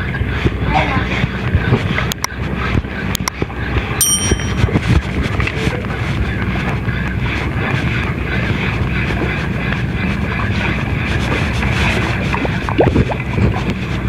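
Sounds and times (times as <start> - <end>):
bell-like ding: 4.0 - 4.8.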